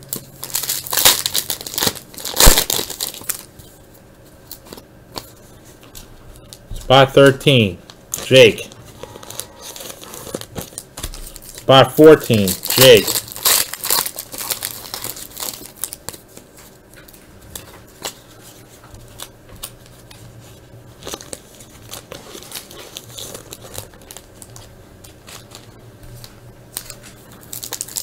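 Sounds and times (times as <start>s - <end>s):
foil wrapper tearing and crinkling: 0.0s - 3.6s, 8.1s - 16.9s, 20.9s - 28.0s.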